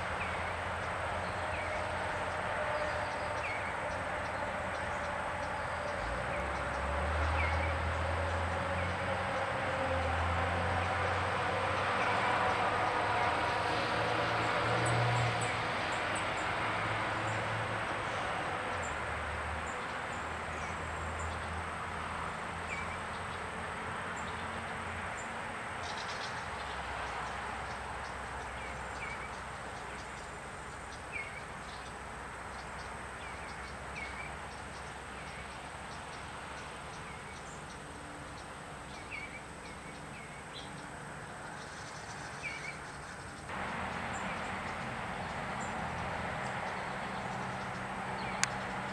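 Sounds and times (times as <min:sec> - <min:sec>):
low vehicle hum: 0:42.8 - 0:48.9
outdoor rushing noise: 0:43.5 - 0:48.9.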